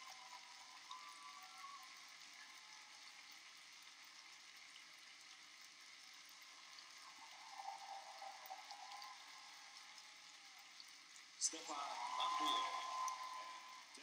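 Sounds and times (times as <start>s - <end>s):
faint wavering tone: 0.0s - 3.0s, 6.8s - 10.7s, 11.5s - 14.0s
faint crackling hiss: 0.0s - 14.0s.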